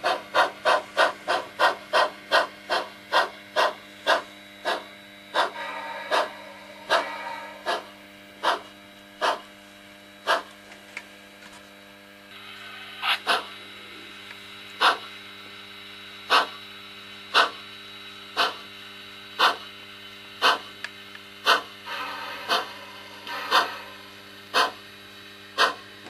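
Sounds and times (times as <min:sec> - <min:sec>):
model steam locomotive exhaust chuffs: 0:00.0 - 0:09.5, 0:12.3 - 0:14.2, 0:14.8 - 0:15.2, 0:16.2 - 0:16.7, 0:18.3 - 0:26.0
steady electrical hum: 0:00.0 - 0:26.0.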